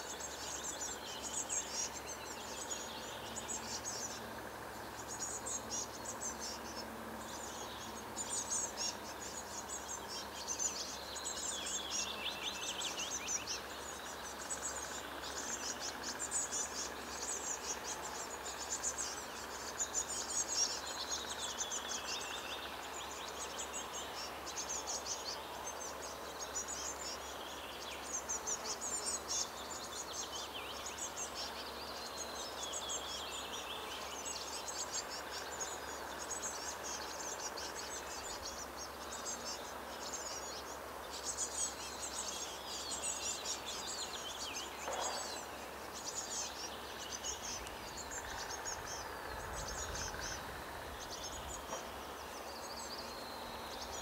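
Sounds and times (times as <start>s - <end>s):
nestlings chirping: 23.1s - 54.0s.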